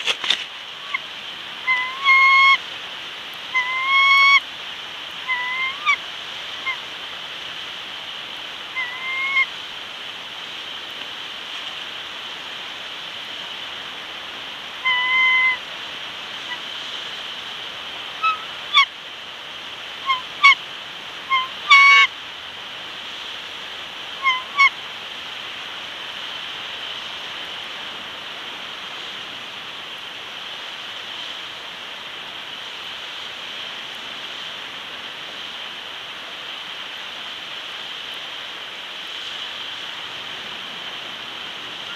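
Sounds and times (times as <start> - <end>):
eagles calling: 0.0 - 2.6, 3.4 - 4.4, 5.1 - 6.9, 8.6 - 9.6, 14.8 - 15.7, 18.0 - 18.9, 20.0 - 20.6, 21.2 - 22.1, 24.2 - 24.8
steady hiss: 0.0 - 41.9.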